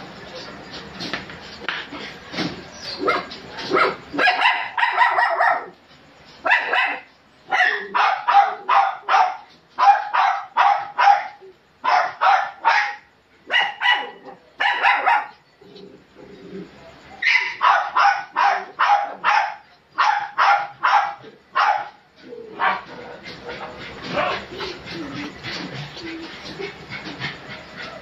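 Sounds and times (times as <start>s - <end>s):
small dog barking: 3.0s - 5.8s, 6.4s - 15.4s, 17.2s - 23.0s.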